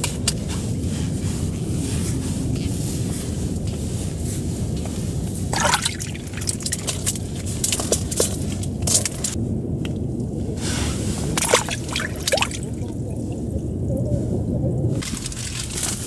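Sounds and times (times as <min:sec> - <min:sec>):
low rumble: 0:00.0 - 0:16.0
water sloshing and trickling: 0:04.9 - 0:09.4, 0:11.4 - 0:13.6
water splash: 0:05.5 - 0:09.4, 0:11.4 - 0:13.4.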